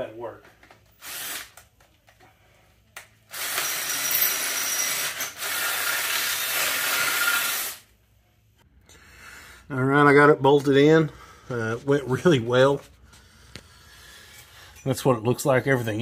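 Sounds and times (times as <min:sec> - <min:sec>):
cordless drill boring through steel: 0:01.0 - 0:01.6, 0:03.3 - 0:07.8.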